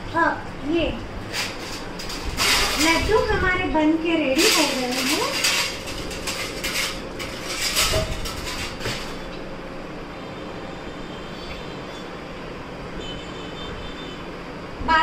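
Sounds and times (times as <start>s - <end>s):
metal plates clinking and rattling: 1.3s - 3.4s, 4.3s - 9.4s.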